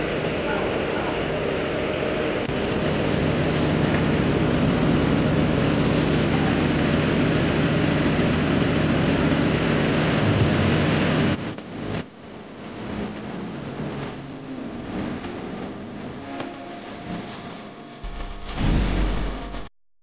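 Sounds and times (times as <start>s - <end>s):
diesel engine running under load: 0.0s - 11.4s.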